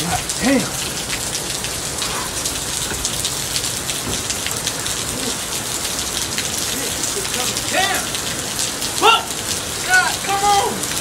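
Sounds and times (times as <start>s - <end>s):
heavy rain on pavement: 0.0s - 11.0s.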